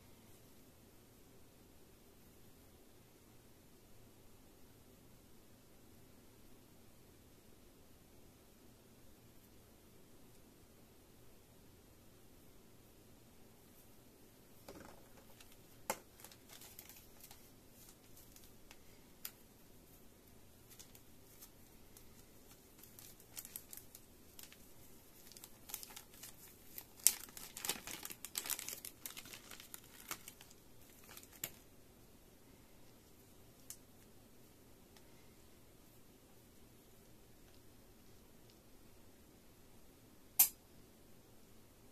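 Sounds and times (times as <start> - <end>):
plastic bag crinkling and tearing: 15.2 - 18.8, 20.7 - 31.6
sharp plastic snap: 40.4 - 40.6.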